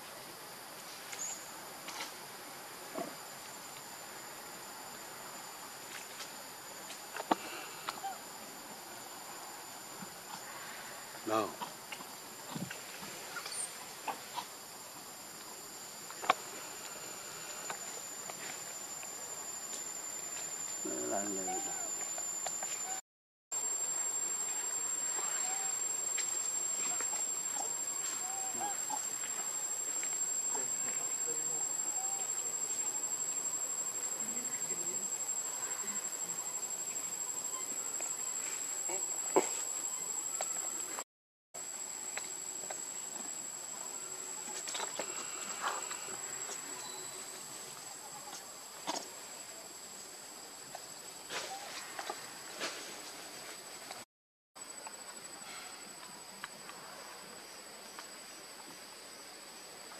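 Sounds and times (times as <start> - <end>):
high-pitched insect drone: 15.6 - 23.0, 23.6 - 41.0, 41.6 - 48.3.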